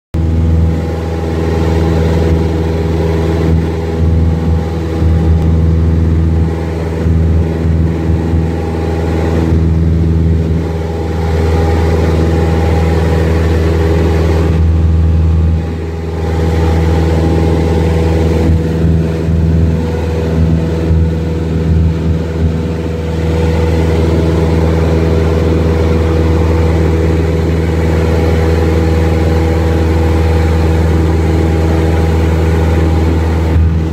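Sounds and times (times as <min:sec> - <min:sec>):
plane engine droning in cabin: 0:00.2 - 0:33.9.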